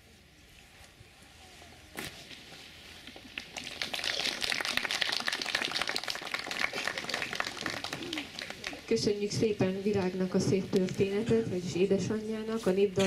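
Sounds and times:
crowd applauding: 3.3 - 8.9.

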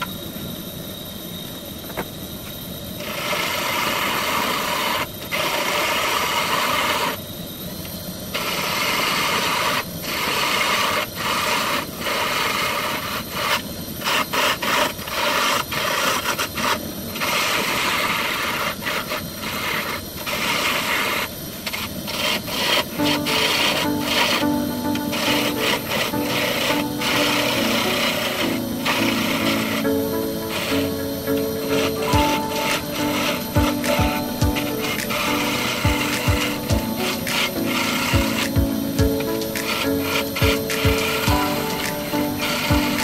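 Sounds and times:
lathe tool scraping wood: 8.6 - 43.0.

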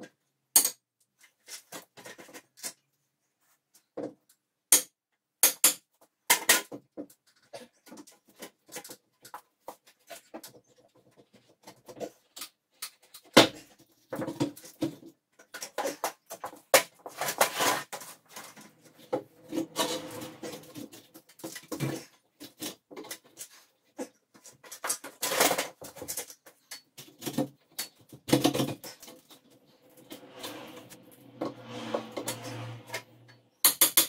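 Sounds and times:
wood creaking and scraping: 14.0 - 33.6.

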